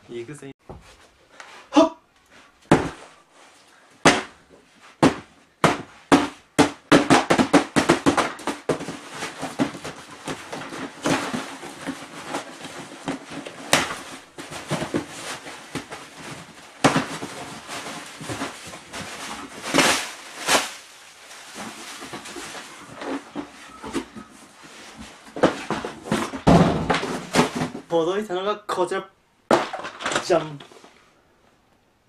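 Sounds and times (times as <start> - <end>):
elbow thudding on cardboard box: 2.7 - 3.1, 4.0 - 4.4, 5.0 - 20.8, 25.3 - 27.8
cardboard and tape ripping: 6.9 - 23.4.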